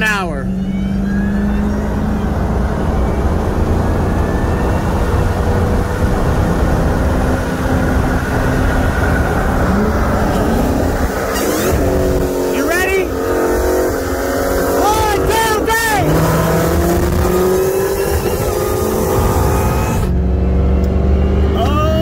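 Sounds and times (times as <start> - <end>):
car engine at full throttle: 0.0 - 22.0
road and wind noise: 0.0 - 22.0.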